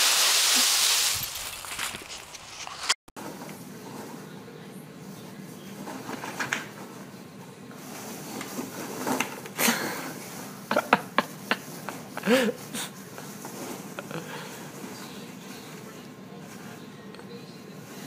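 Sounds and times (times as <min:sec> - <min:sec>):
packing peanuts rustling and clicking: 0:00.0 - 0:03.0.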